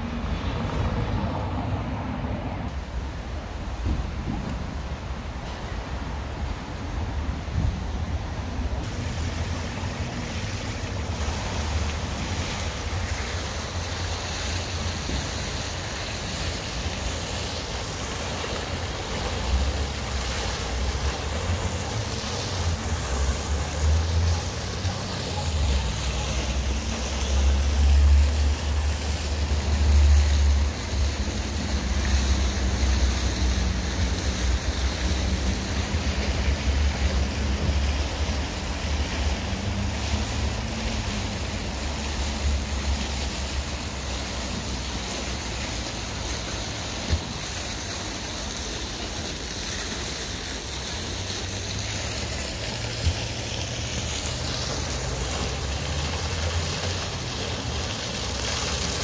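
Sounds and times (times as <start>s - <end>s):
fountain jets splashing water: 0.0s - 59.0s.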